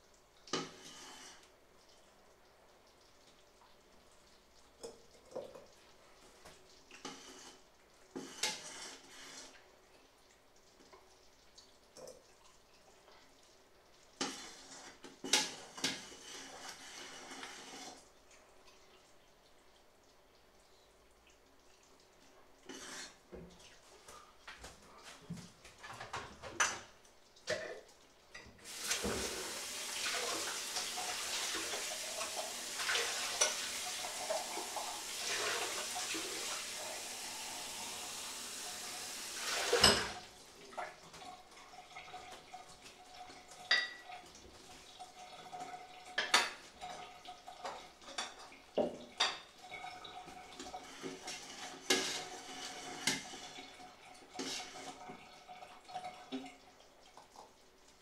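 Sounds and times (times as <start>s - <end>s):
tap running into sink: 28.4s - 40.2s
dishes clinking: 39.6s - 40.2s.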